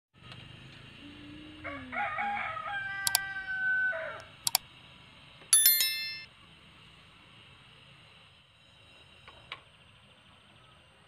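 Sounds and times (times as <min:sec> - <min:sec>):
bright bell ding: 0:05.6 - 0:06.3.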